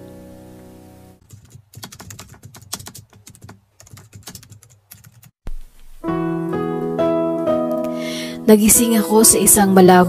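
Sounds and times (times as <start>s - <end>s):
rapid irregular clicking: 1.2s - 5.9s.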